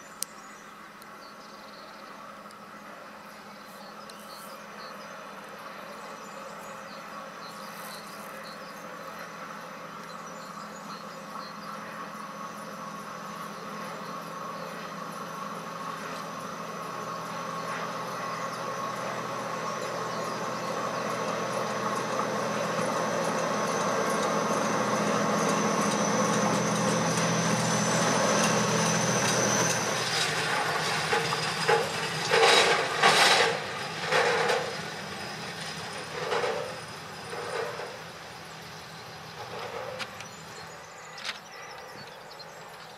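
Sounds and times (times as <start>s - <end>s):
diesel locomotive engine hum: 0.0s - 42.9s
locomotive high whine: 0.0s - 42.9s
train wheels clanking on rails: 12.7s - 42.9s.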